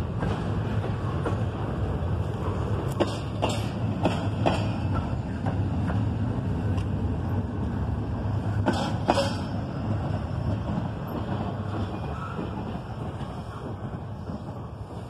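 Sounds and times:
train cars rumbling past: 0.0s - 15.0s
sharp clacks of wheels: 2.3s - 7.0s, 8.6s - 15.0s.

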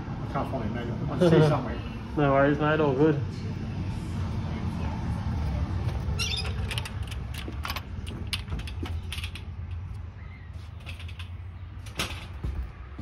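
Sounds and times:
screen door clicks and knocks: 6.2s - 9.8s, 10.8s - 12.7s.

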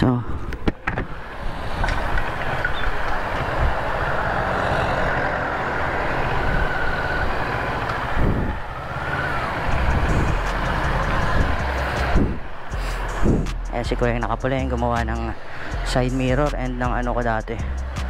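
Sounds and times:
road and wind noise: 0.0s - 18.0s
motorcycle engine running: 3.3s - 14.9s.

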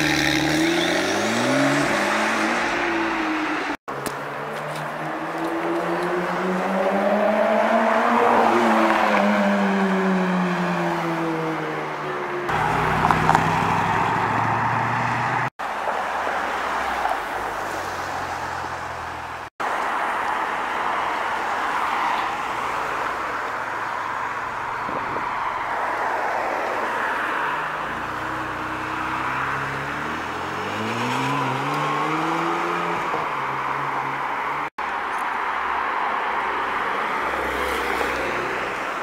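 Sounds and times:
car passing: 0.0s - 34.7s, 35.5s - 39.0s
road and wind noise: 0.0s - 39.0s
car engine accelerating: 12.5s - 15.5s.

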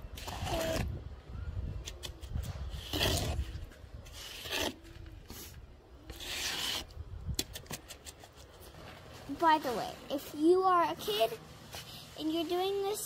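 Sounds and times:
trowel scraping wet concrete: 0.1s - 0.9s, 1.9s - 5.5s, 6.1s - 8.4s.

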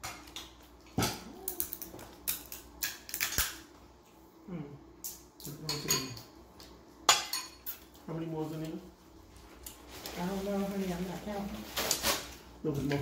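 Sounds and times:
seafood shells cracking: 0.1s - 3.7s.

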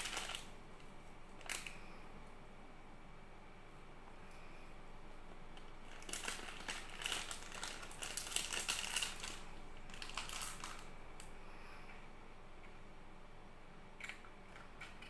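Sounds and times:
plastic wrapper crinkling: 0.0s - 0.5s, 1.4s - 1.8s, 5.6s - 11.3s.

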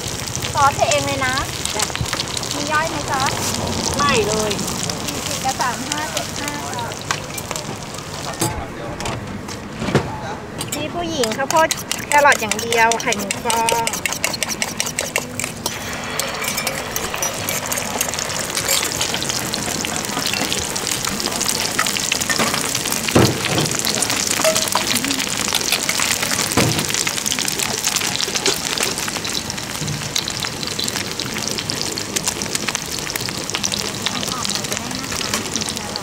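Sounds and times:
egg sizzling in hot oil: 0.0s - 8.4s, 11.1s - 36.0s.

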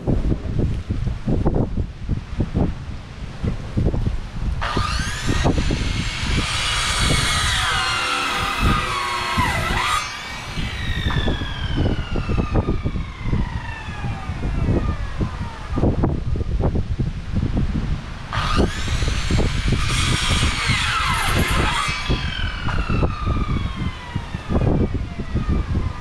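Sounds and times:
wind noise on microphone: 0.0s - 26.0s
power tool motor whining: 4.6s - 16.0s, 18.2s - 26.0s.

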